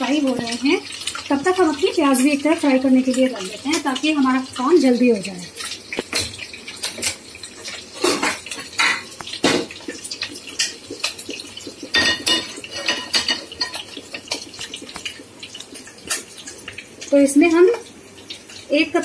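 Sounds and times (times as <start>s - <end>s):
metal cookware clinking on stovetop: 5.6s - 9.8s, 11.9s - 15.2s.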